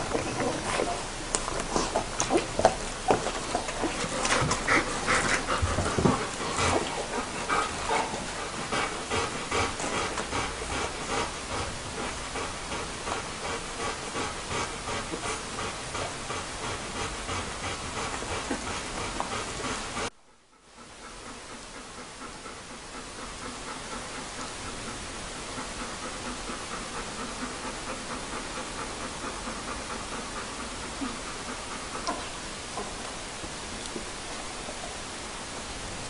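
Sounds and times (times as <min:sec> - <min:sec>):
puppies suckling: 0:00.0 - 0:20.1.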